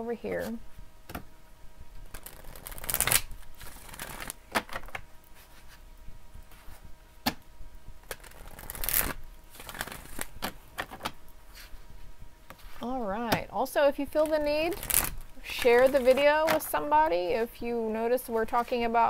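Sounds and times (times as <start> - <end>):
cards shuffling: 2.1 - 5.8, 8.1 - 11.1.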